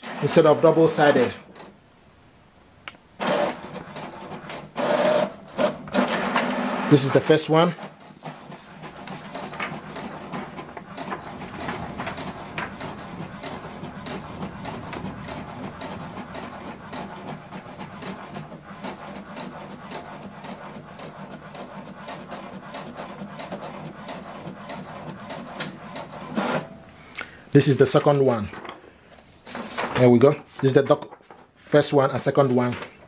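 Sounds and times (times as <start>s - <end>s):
inkjet printer printing: 0.0s - 1.8s, 3.2s - 26.8s, 27.8s - 30.8s
print head carriage clicks: 3.2s - 6.7s, 7.8s - 18.4s.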